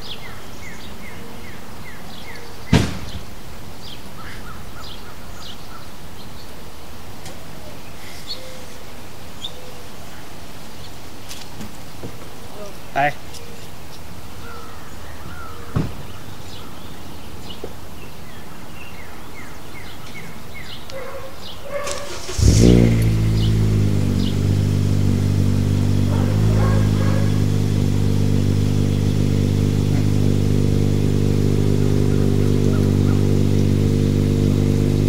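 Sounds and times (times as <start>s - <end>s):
engine starting and running: 21.8s - 35.0s.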